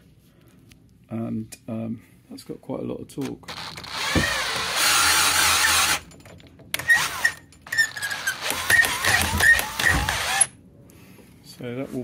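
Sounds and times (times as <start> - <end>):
cordless drill motor running: 3.5 - 6.0, 6.8 - 10.5.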